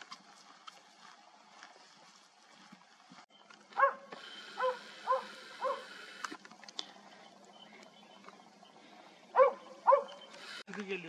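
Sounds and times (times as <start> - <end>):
dog barking: 3.8 - 5.9, 9.3 - 10.2.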